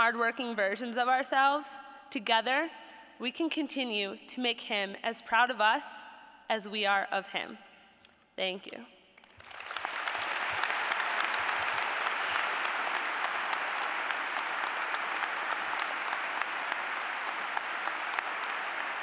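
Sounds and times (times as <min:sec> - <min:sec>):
audience applauding: 0:09.2 - 0:19.0.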